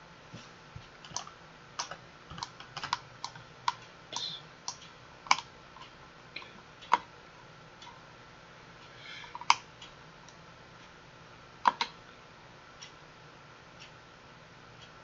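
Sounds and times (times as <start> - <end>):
keyboard and mouse clicks: 1.0 - 7.1, 11.6 - 12.0.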